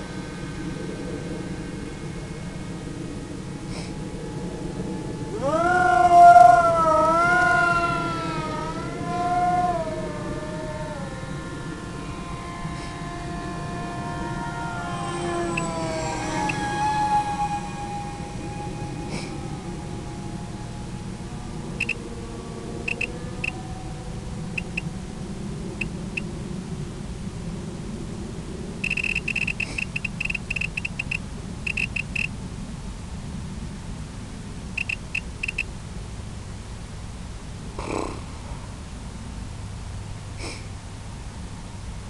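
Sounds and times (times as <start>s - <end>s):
steady low rumble: 0.0s - 42.0s
short high electronic beeps: 28.8s - 32.3s.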